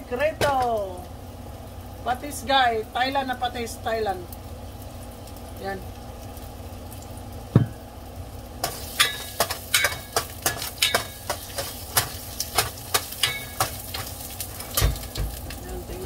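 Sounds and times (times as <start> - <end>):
ginger sizzling in hot oil: 0.1 - 16.0
metal spoon clinking on pot: 8.6 - 14.1.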